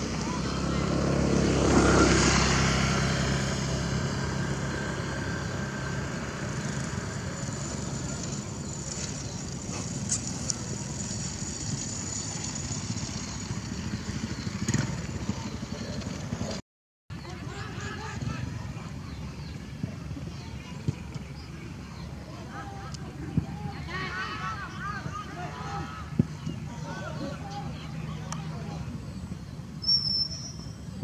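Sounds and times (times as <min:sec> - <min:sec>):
vehicle engine passing by: 0:00.0 - 0:16.6
outdoor background noise: 0:00.0 - 0:31.0.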